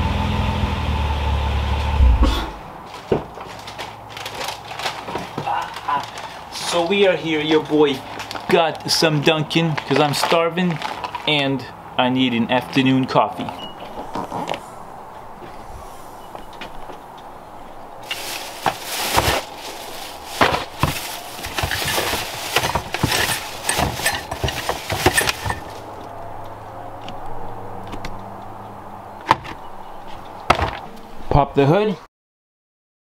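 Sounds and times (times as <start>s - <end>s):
plastic bags rustling: 2.8s - 11.4s, 13.5s - 26.1s.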